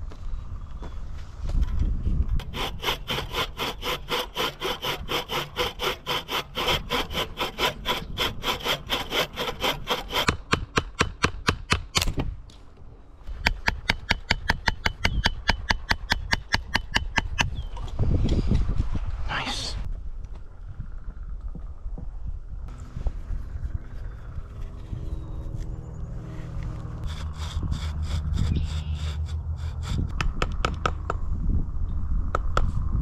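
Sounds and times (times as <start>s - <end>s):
hand saw cutting log: 2.4s - 11.1s, 27.0s - 30.1s.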